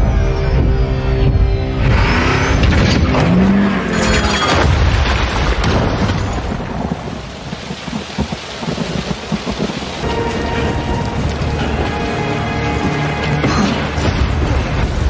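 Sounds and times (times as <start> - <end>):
wind: 0.0 - 15.0
pouring rain: 3.2 - 15.0
thunder rumbling: 4.6 - 15.0.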